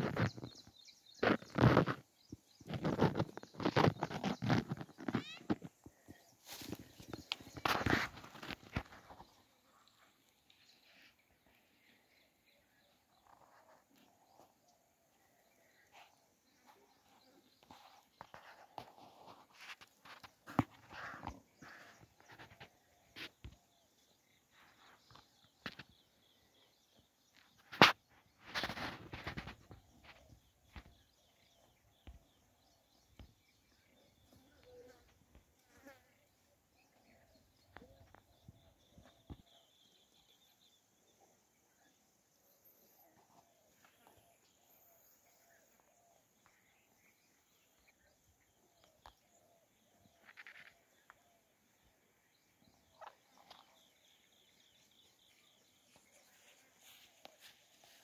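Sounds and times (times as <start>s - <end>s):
rustling through brush: 0.0s - 11.5s, 27.3s - 31.8s, 53.0s - 58.0s.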